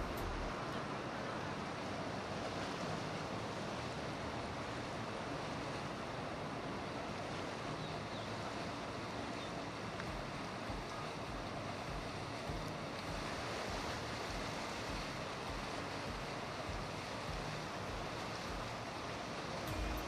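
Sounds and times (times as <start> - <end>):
wind noise on microphone: 0.0 - 1.2, 10.1 - 20.0
river water rushing: 0.0 - 20.0.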